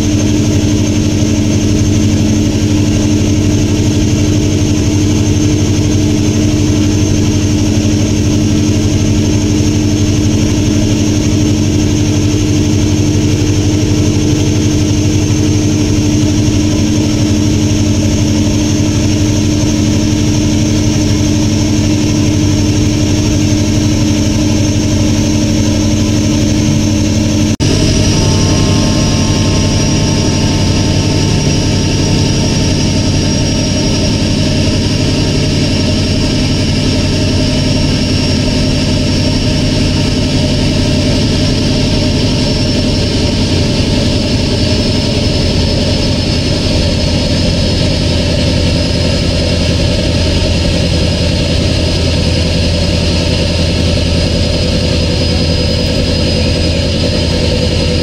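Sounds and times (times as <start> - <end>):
boat engine droning: 0.0 - 58.0
water noise: 19.1 - 52.6.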